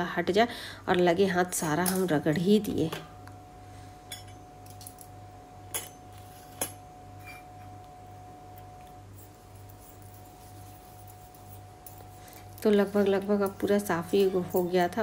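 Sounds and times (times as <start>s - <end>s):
faint steady hum: 0.0s - 15.0s
kitchenware clinking: 4.1s - 5.1s, 5.7s - 7.6s.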